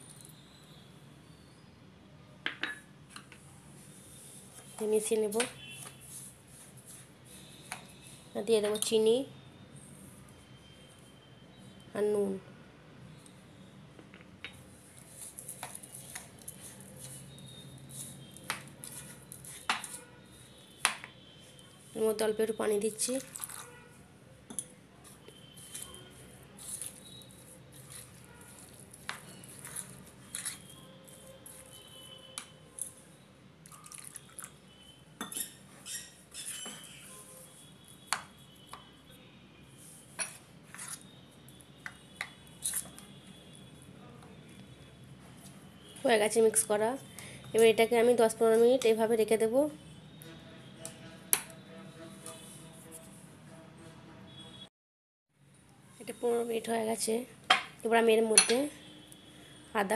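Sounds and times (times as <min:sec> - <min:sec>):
metal spoon stirring batter: 0:14.5 - 0:39.0, 0:39.8 - 0:43.9
gritty scraping rustle in bowl: 0:26.6 - 0:31.7
spoon clinking against bowl: 0:35.2 - 0:36.9, 0:58.4 - 0:58.6.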